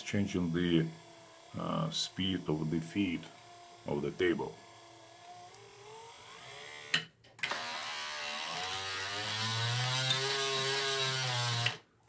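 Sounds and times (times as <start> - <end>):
electric motor whining: 0.4 - 11.8.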